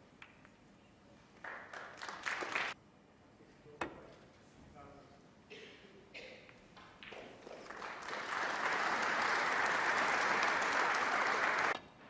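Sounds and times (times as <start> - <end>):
audience applauding: 1.4 - 2.8, 7.1 - 11.8.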